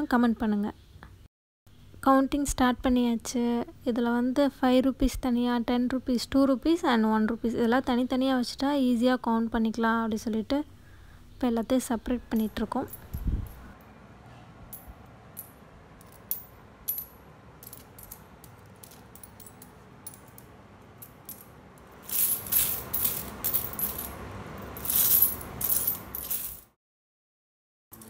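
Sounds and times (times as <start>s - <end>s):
coins clinking: 14.8s - 26.7s.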